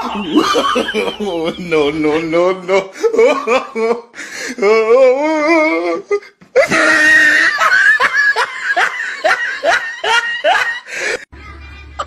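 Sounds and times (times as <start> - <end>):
person laughing hard: 0.0 - 4.8, 6.6 - 11.2.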